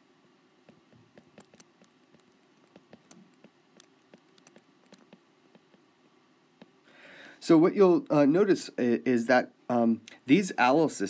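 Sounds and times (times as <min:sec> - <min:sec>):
stylus tapping on tablet screen: 0:00.6 - 0:06.8.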